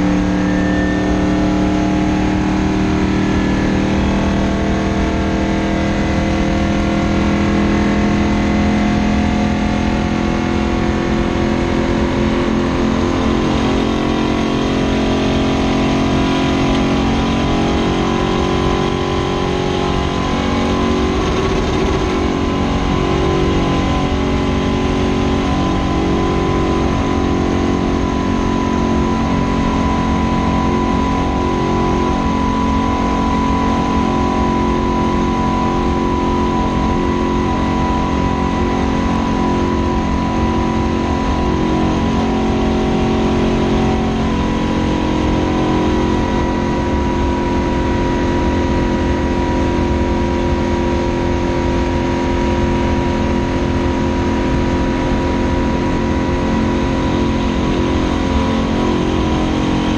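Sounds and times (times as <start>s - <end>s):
race car engine drone: 0.0s - 59.9s.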